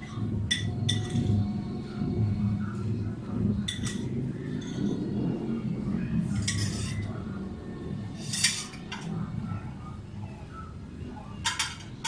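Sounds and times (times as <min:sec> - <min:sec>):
low background rumble: 0:00.0 - 0:12.0
metal tools clinking and scraping: 0:06.3 - 0:07.1, 0:08.2 - 0:09.1, 0:11.4 - 0:12.0.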